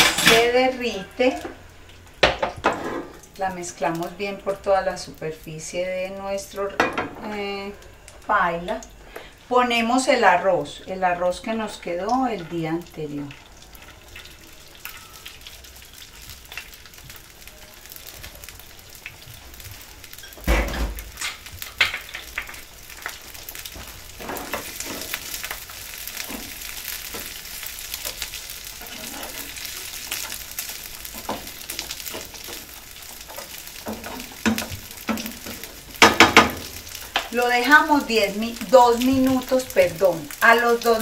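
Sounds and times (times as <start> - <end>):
rice sizzling in a frying pan: 0.0 - 41.0
spatula scraping a pan: 28.0 - 30.4.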